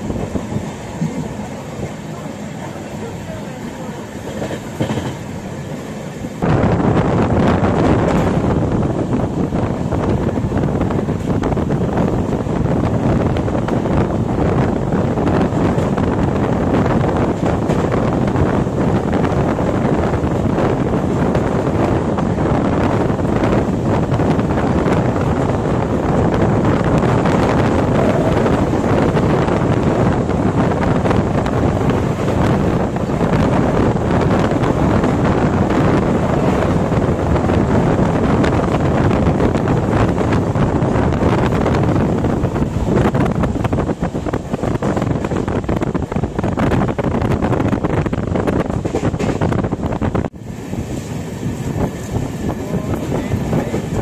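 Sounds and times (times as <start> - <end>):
wind rushing over microphone: 0.0 - 2.3, 4.0 - 54.0
train running rumble: 0.0 - 54.0.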